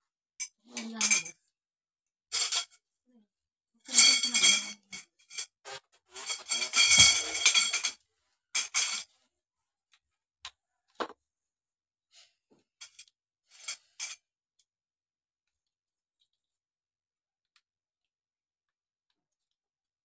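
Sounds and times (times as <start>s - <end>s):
metal tubes scraping: 3.9s - 8.0s, 12.8s - 14.2s.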